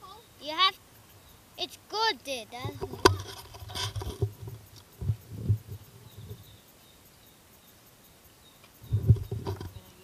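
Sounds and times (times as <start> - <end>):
faint outdoor background: 0.0 - 10.0
dull low thumps: 4.2 - 6.5.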